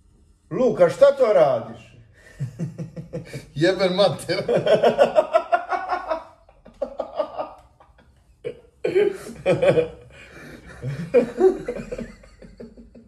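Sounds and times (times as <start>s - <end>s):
men laughing: 2.2s - 13.0s.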